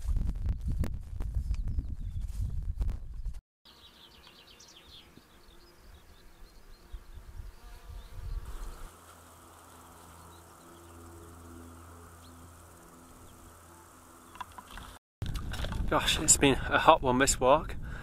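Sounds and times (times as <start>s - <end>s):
wind rumble on microphone: 0.0s - 3.4s, 6.4s - 8.9s, 14.7s - 18.0s
insects buzzing: 3.7s - 15.9s.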